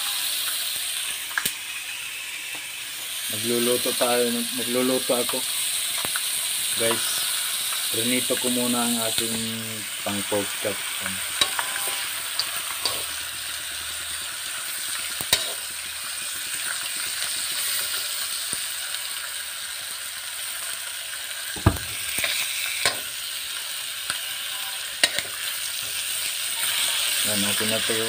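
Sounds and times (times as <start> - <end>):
meat sizzling in a pan: 0.0 - 28.0
sharp knocks: 21.6 - 22.0.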